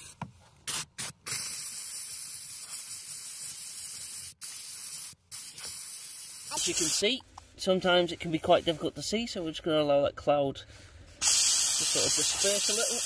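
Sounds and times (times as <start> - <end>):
steam cleaner hissing: 0.7 - 7.1, 11.2 - 13.0.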